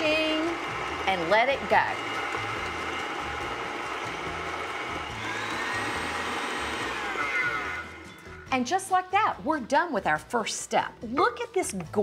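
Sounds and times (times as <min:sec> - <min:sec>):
stand mixer running at high speed: 0:00.0 - 0:08.1.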